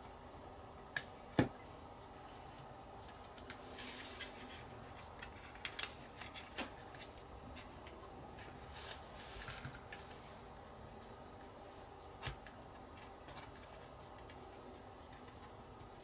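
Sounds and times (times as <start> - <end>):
tape peeling crackles: 3.0 - 10.0.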